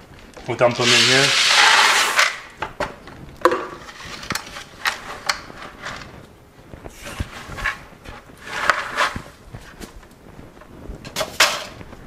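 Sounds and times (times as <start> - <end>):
plastic bucket clicks and knocks: 2.6 - 4.4.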